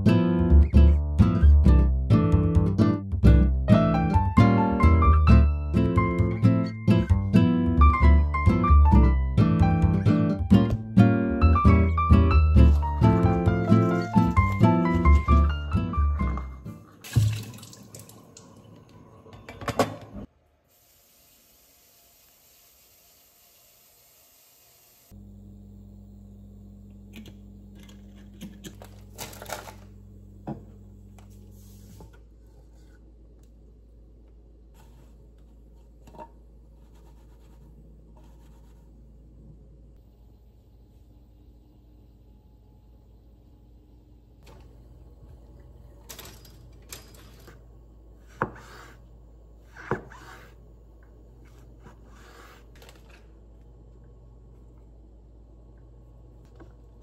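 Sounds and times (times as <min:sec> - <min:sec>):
steady low hum: 0:25.1 - 0:57.0.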